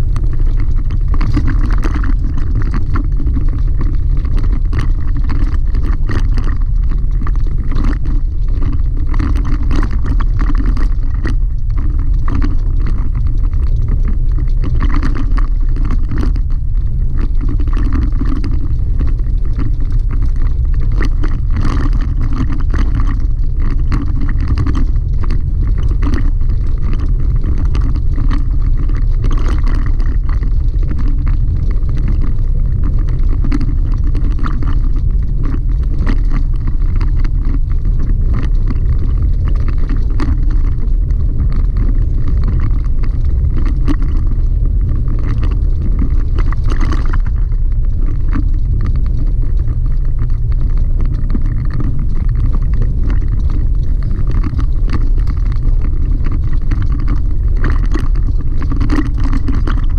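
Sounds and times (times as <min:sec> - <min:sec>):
gravel clicks and rattles: 0:00.0 - 0:59.9
low rumble of tyres on gravel: 0:00.0 - 0:59.9.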